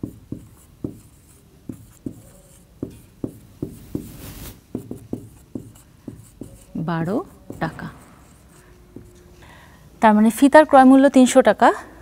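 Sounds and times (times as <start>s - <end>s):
marker pen writing on whiteboard: 0.0s - 9.3s.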